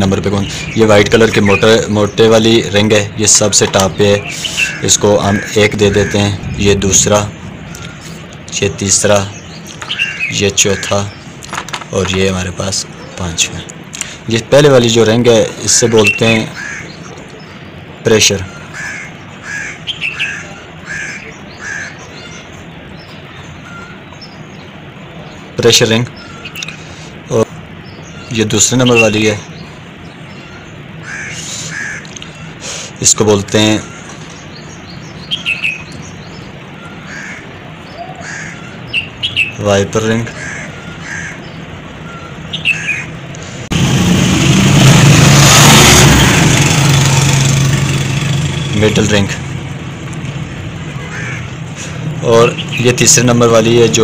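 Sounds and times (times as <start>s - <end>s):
steady low hum: 0.0s - 11.5s
bird calling: 0.0s - 14.3s, 14.9s - 43.7s, 45.7s - 54.0s
engine humming with hiss: 0.0s - 39.9s, 40.5s - 54.0s.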